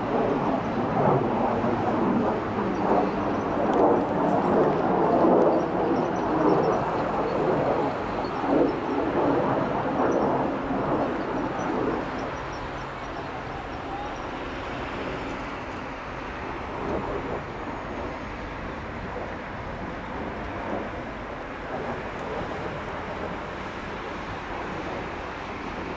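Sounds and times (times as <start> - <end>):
distant jet roar: 0.0 - 25.9.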